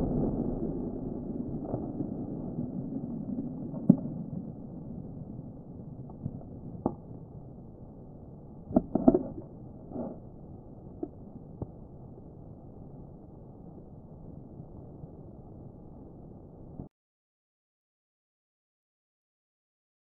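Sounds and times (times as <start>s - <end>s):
explosion rumble: 0.0s - 6.8s.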